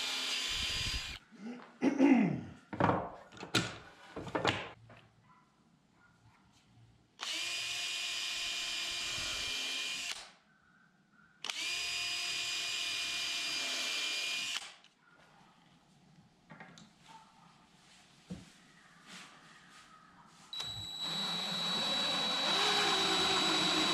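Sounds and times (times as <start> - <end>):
cordless drill boring into wood: 0.0 - 1.2, 7.2 - 10.3, 11.4 - 14.8, 20.6 - 23.9.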